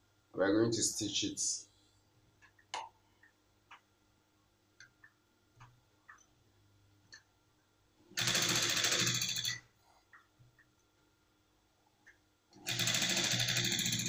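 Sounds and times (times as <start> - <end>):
sewing machine stitching: 8.2 - 9.6, 12.6 - 14.0.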